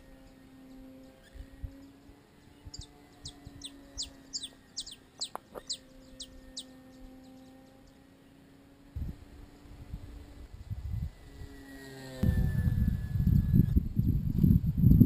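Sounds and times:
bird chirping: 0:00.0 - 0:08.5
faint steady hum: 0:00.0 - 0:15.0.

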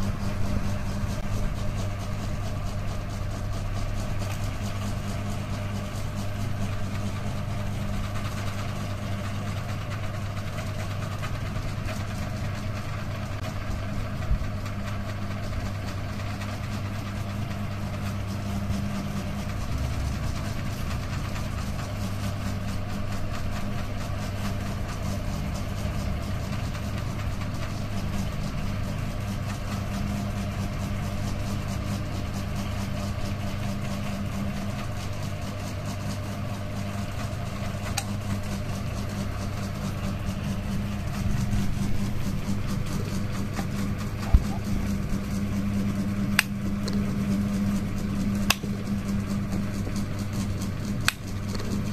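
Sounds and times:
ceiling fan motor hum: 0:00.0 - 0:51.9.

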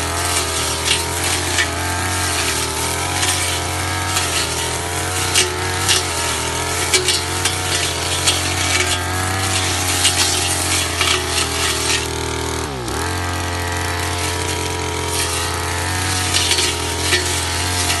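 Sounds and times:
cutting head slashing weeds: 0:00.0 - 0:12.3, 0:14.0 - 0:18.0
brush cutter engine: 0:00.0 - 0:18.0.

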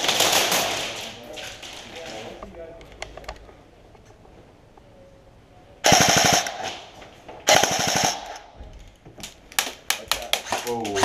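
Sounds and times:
rapid airsoft gunfire: 0:00.0 - 0:01.1, 0:05.8 - 0:06.9, 0:07.5 - 0:08.5.

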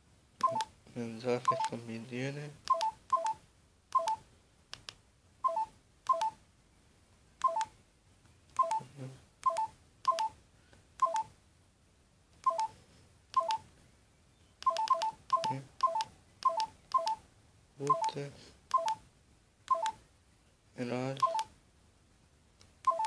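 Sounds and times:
phone keypad beeps: 0:00.4 - 0:00.7, 0:01.4 - 0:01.8, 0:02.7 - 0:04.2, 0:05.4 - 0:06.4, 0:07.4 - 0:07.7, 0:08.6 - 0:10.4, 0:11.0 - 0:11.3, 0:12.4 - 0:12.8, 0:13.4 - 0:13.6, 0:14.6 - 0:17.2, 0:17.9 - 0:19.0, 0:19.7 - 0:20.0, 0:21.2 - 0:21.5.

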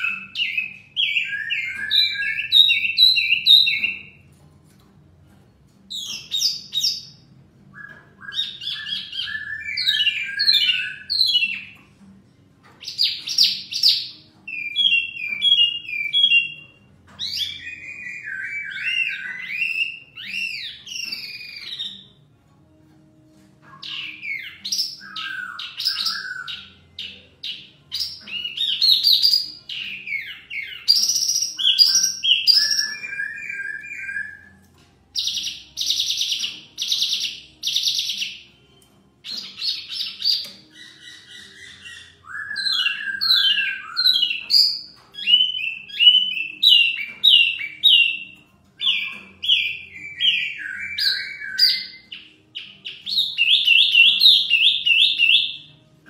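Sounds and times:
bird singing whistled chattering notes: 0:00.0 - 0:04.4, 0:05.9 - 0:11.9, 0:12.7 - 0:22.2, 0:23.6 - 0:55.8
laughingthrush singing: 0:23.6 - 0:38.6, 0:39.2 - 0:56.0.

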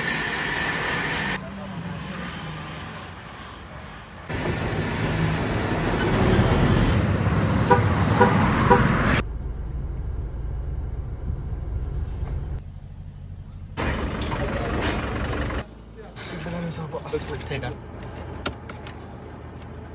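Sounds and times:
road traffic: 0:00.0 - 0:19.9
car horn beeping: 0:07.6 - 0:09.0.

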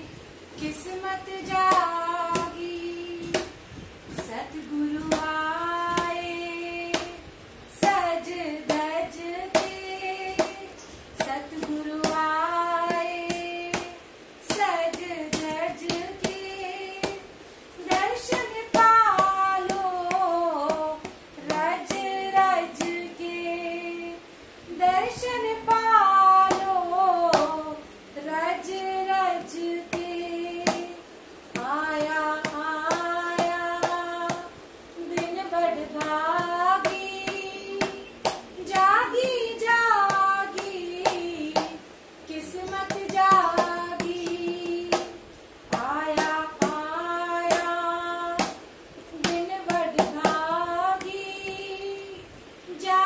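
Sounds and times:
women singing devotional song: 0:00.0 - 0:53.0
hands clapping in time: 0:36.8 - 0:38.9.

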